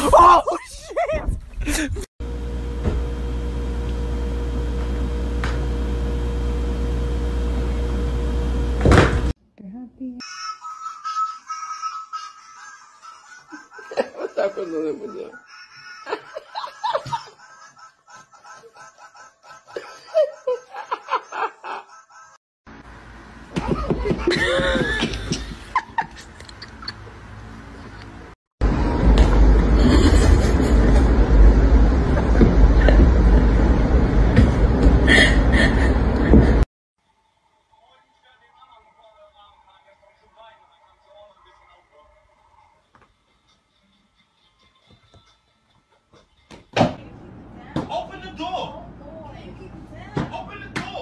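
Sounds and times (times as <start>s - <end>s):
electric appliance fan hum: 2.2s - 9.4s, 22.7s - 36.6s, 47.0s - 51.0s
people laughing: 12.4s - 22.4s, 23.6s - 27.1s, 29.7s - 31.2s
people snickering: 13.1s - 22.4s, 23.6s - 27.2s.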